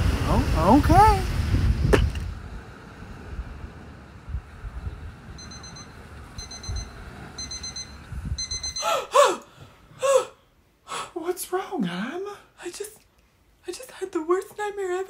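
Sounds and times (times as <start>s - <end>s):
wind rumbling on microphone: 0.0s - 8.8s
alarm clock beeping: 5.4s - 9.0s
woman gasping: 8.8s - 11.2s.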